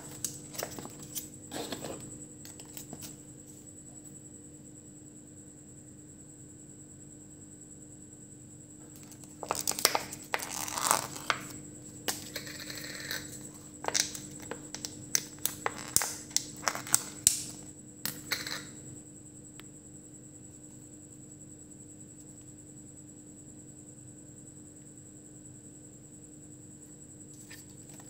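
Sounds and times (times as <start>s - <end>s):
cardboard and plastic crinkling: 0.0s - 3.1s, 9.0s - 11.5s.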